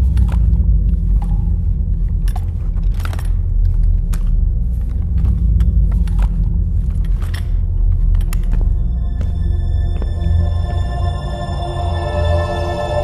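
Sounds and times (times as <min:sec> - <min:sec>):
low rumbling drone: 0:00.0 - 0:13.0.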